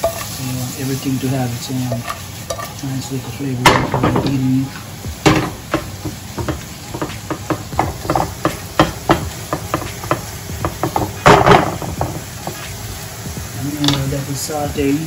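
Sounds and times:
spatula scraping a frying pan: 0.0s - 0.4s, 1.6s - 2.9s, 5.6s - 12.8s
faint sizzle: 0.0s - 15.0s.

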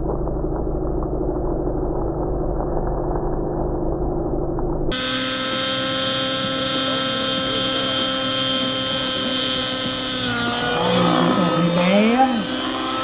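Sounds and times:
rc helicopter engine and rotors: 4.9s - 13.0s.

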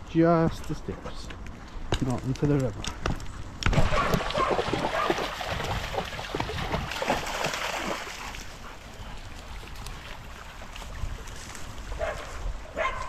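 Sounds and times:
dogs splashing through water: 3.6s - 12.8s
stream water rushing: 3.8s - 8.6s.

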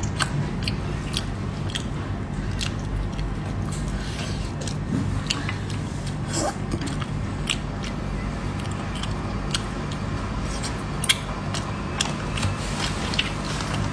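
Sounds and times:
mouth smacks and clicks: 0.0s - 4.0s, 8.6s - 13.9s
steady low hum: 0.0s - 13.9s
sucking and chewing snails: 0.0s - 13.9s.

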